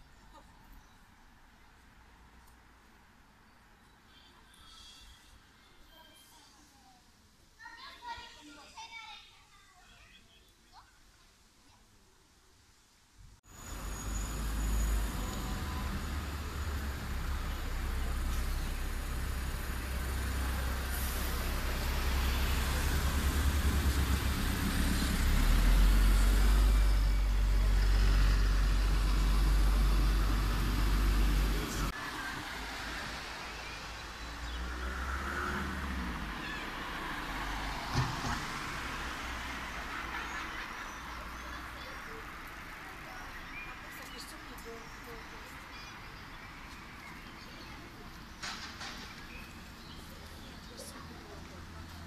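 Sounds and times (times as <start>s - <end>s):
vehicles passing: 13.4s - 52.0s.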